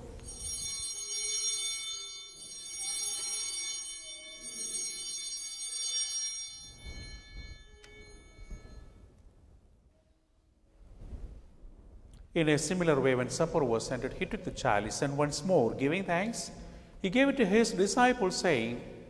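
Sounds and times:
altar bells ringing: 0.0 - 9.4.

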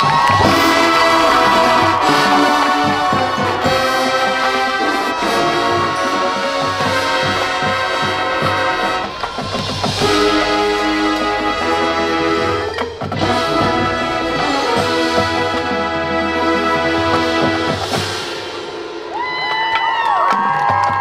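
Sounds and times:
steady drum hits: 0.0 - 16.2
brass holding chords: 0.4 - 18.4.

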